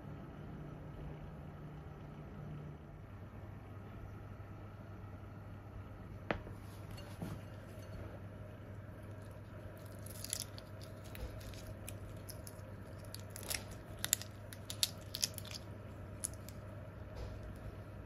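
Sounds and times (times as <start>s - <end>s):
faint steady hum: 0.0s - 18.0s
shrimp shells crackling: 9.0s - 17.6s.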